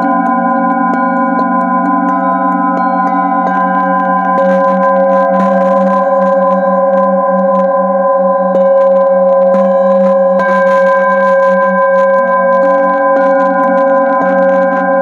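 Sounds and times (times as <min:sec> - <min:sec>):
mallet striking bowl: 0:00.0 - 0:11.3
singing bowl ringing: 0:00.0 - 0:15.0.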